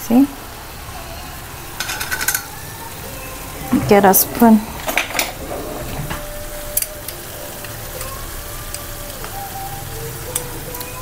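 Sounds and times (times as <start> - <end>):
sauce simmering in a pan: 6.3 - 11.0.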